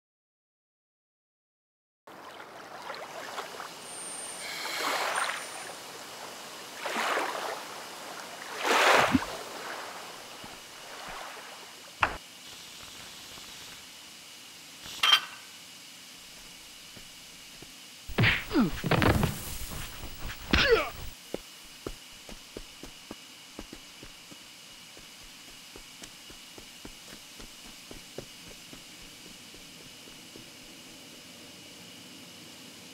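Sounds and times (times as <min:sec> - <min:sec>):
water washing and splashing: 0:06.7 - 0:11.9.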